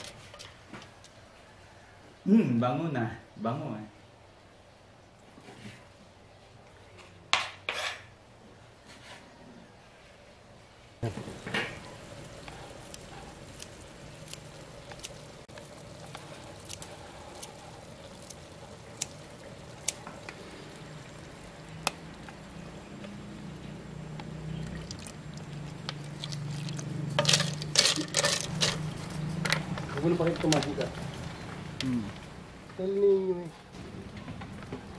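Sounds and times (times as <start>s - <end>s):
liquid pouring into metal pot: 24.6s - 28.9s.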